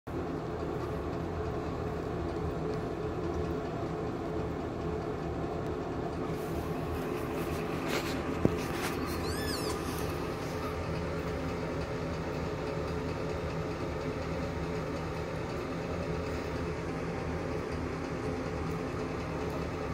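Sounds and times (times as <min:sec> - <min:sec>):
kitten squeaking: 0:08.5 - 0:10.9.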